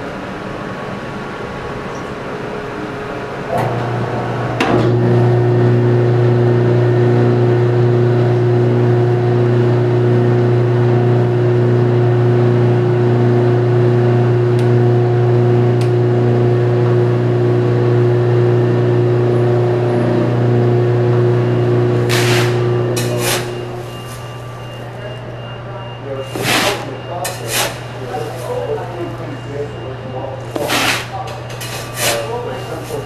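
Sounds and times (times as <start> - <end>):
coffee roaster motor hum: 0.0 - 33.0.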